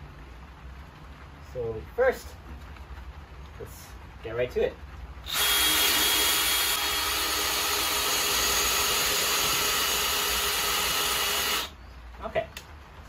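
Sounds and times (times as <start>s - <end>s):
power drill boring into wood: 5.3s - 11.7s.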